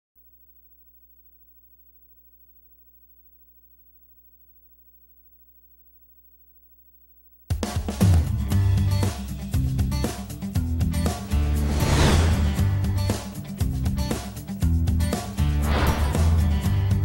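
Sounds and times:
faint low hum: 0.2 - 7.5
theme music: 11.1 - 14.1, 15.4 - 17.0.

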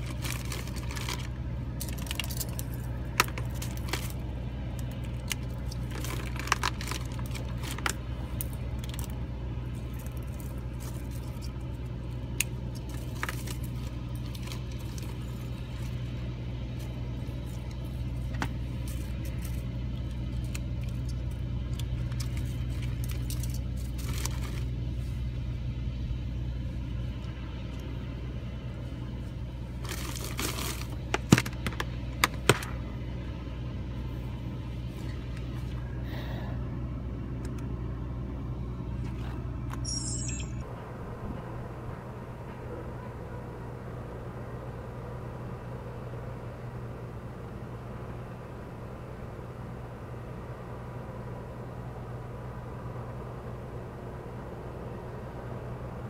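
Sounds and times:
fishing tackle clicking and rustling: 0.0 - 4.2, 4.8 - 9.2
steady low hum: 0.0 - 56.0.

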